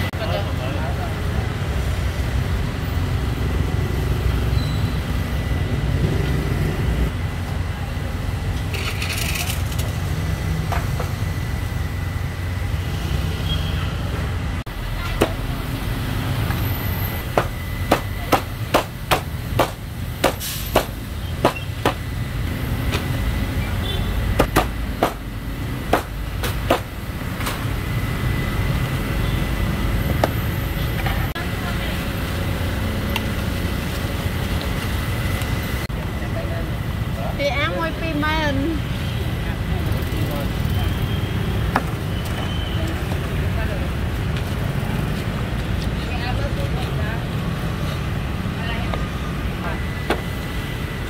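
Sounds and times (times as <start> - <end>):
low street hum: 0.0 - 51.0
cleaver chopping poultry: 15.2 - 15.5, 17.2 - 22.1, 24.4 - 25.3, 25.9 - 27.0.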